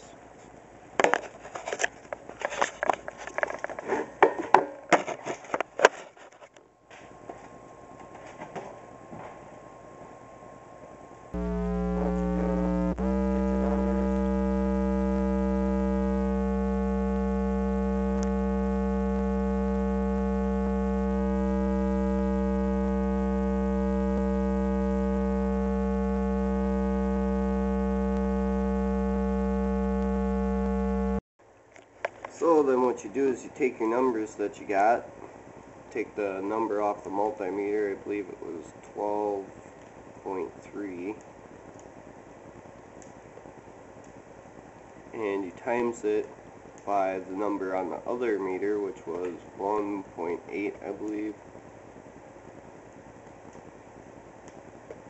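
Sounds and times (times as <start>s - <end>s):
low bass test tone: 11.4s - 31.2s.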